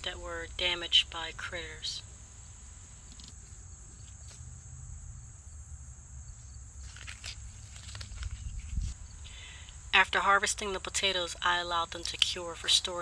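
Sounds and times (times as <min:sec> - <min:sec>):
insects trilling: 0:00.0 - 0:13.0
wind rumble on microphone: 0:08.1 - 0:09.4.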